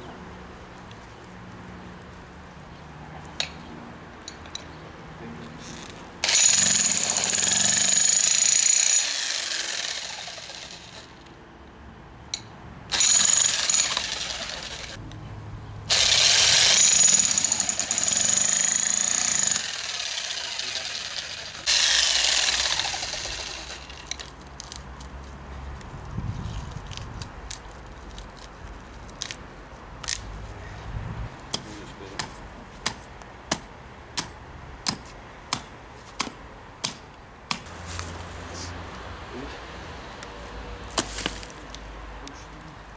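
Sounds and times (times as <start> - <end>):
demolition hammer chiseling wood: 6.2 - 11.1, 15.9 - 24.1
hatchet chopping wood: 31.5 - 37.7.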